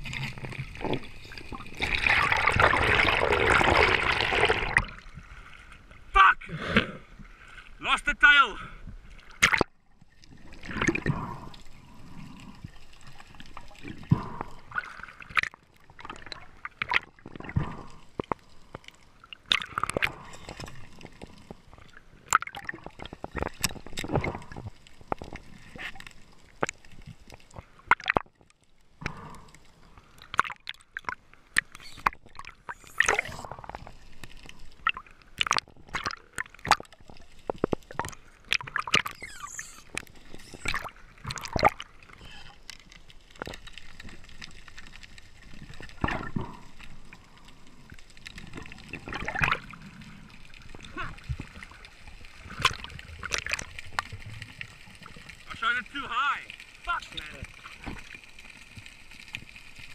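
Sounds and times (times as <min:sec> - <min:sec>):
water gurgling and sloshing: 0:00.0 - 0:07.8, 0:08.7 - 0:59.9
sharp clicks and drips: 0:34.4 - 0:46.5.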